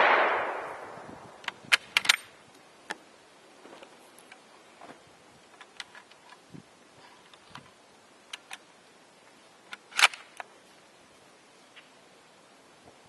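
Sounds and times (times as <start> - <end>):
rifle bolt clicks and clacks: 1.4 - 2.3, 9.7 - 10.5.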